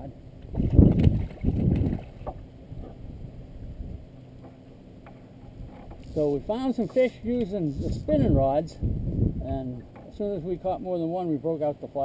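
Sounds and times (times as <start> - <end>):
wind buffeting microphone: 0.4 - 4.1, 5.5 - 10.8.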